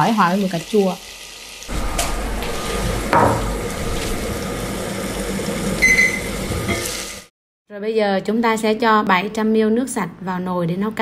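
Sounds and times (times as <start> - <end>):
tomatoes sizzling in oil: 0.0 - 7.3.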